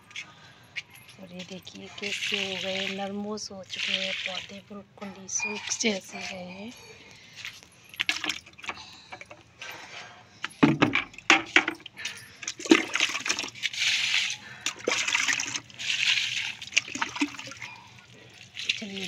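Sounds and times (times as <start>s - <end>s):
water splashing on concrete: 1.9s - 4.7s, 10.8s - 19.0s
knocks and clatters: 10.4s - 11.9s.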